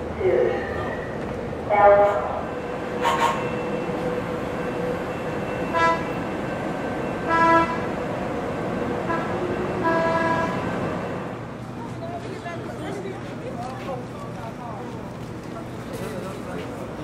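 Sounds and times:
train rolling past rumbling: 0.0s - 17.0s
train horn toots: 3.0s - 3.5s, 5.7s - 6.2s, 7.2s - 8.0s, 9.0s - 10.7s.

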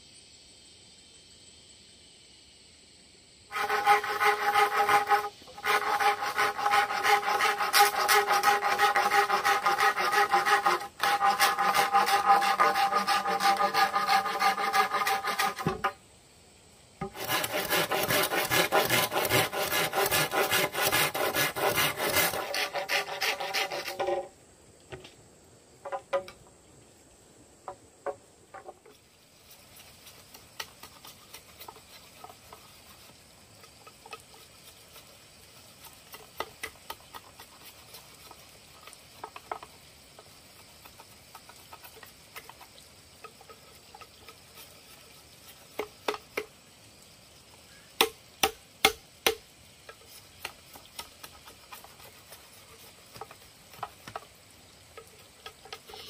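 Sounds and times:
machete tapping and scraping bamboo: 3.5s - 16.0s, 17.0s - 24.3s, 25.8s - 26.4s, 28.0s - 46.6s, 48.0s - 54.3s, 54.9s - 56.0s
machete chopping bamboo: 48.0s - 49.4s.

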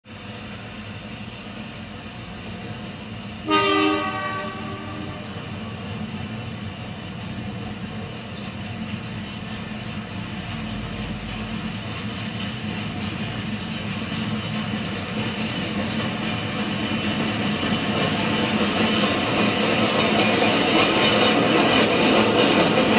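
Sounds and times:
diesel locomotive engine running: 0.1s - 22.9s
multi-tone train horn blast: 3.4s - 5.6s.

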